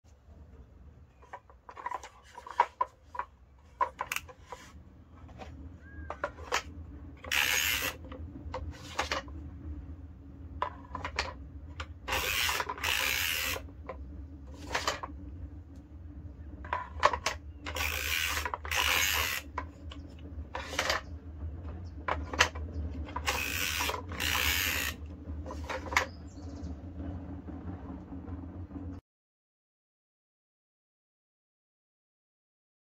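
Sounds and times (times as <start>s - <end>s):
steady low hum: 0.1s - 29.0s
small clicks and knocks: 0.5s - 9.4s, 10.5s - 15.9s, 16.6s - 26.6s.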